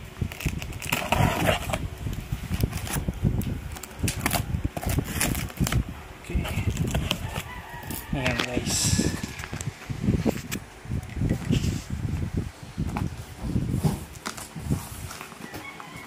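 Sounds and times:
tape and cardboard rustling: 0.0s - 16.0s
scissors slitting packing tape: 0.2s - 1.8s, 2.5s - 5.8s.

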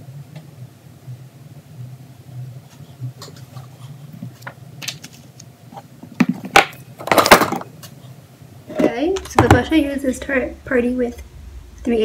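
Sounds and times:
handling taps and rustles: 3.2s - 8.0s.

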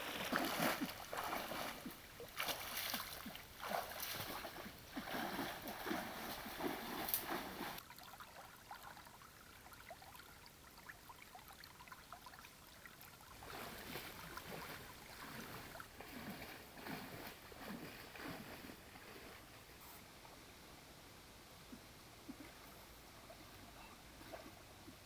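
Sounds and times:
water splashing from wading: 0.0s - 19.2s.

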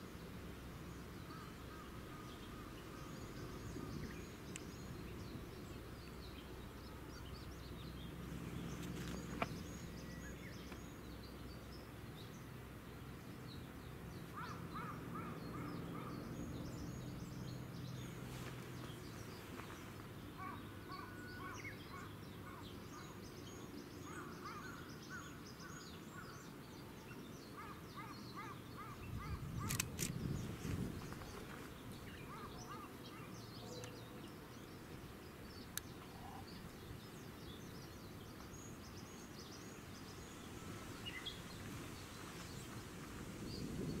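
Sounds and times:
small birds calling and singing: 0.0s - 44.0s
sharp click: 29.6s - 30.2s.

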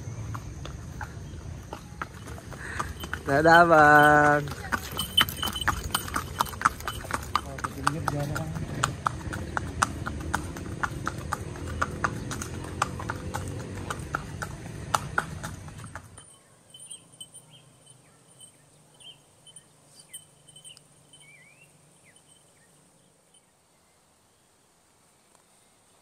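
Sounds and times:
horse hooves clip-clopping: 0.0s - 22.7s
faint high chirps: 16.2s - 24.1s.

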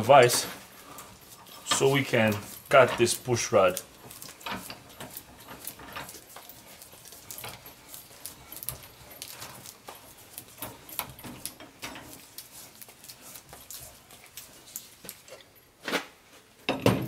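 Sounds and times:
vise metal clicks and clanks: 0.0s - 12.4s.

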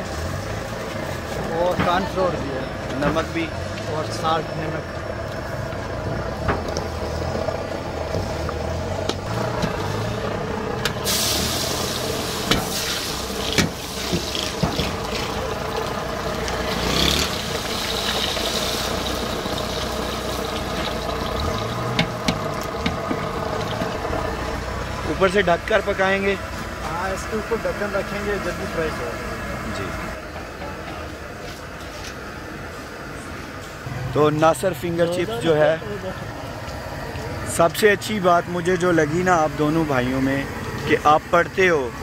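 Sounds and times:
low engine hum: 0.0s - 42.0s
fries sizzling in hot oil: 10.9s - 24.6s.

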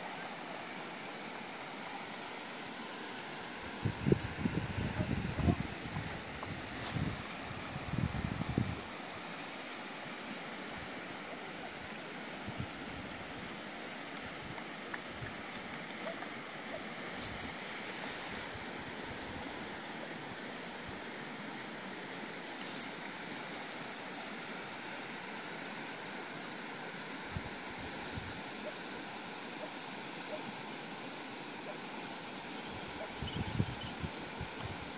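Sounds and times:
outdoor rushing hiss: 0.0s - 33.1s.

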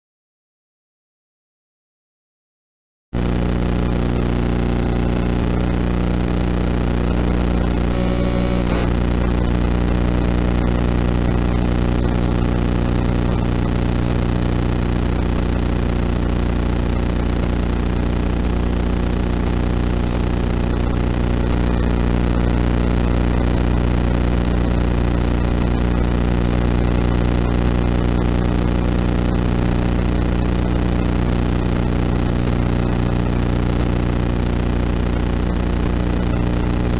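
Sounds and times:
loud buzzing drone: 3.2s - 16.2s.

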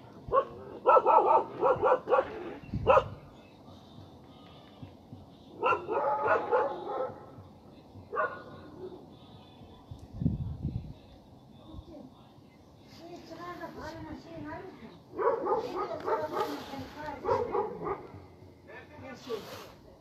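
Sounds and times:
dogs barking: 0.2s - 3.3s, 5.5s - 7.4s, 8.1s - 8.7s, 15.1s - 18.2s.

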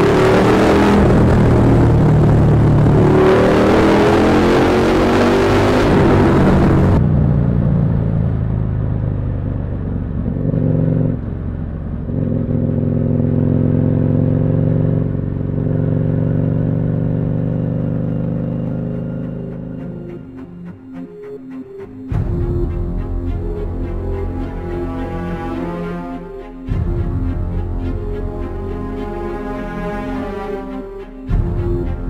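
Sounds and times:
motorcycle engine and exhaust: 0.0s - 20.0s.

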